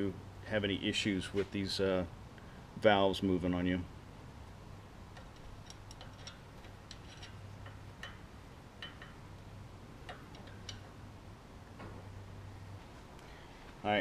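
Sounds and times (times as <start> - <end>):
faint low hum: 0.0 - 14.0
metallic tool clicks: 5.1 - 9.2, 10.0 - 10.9.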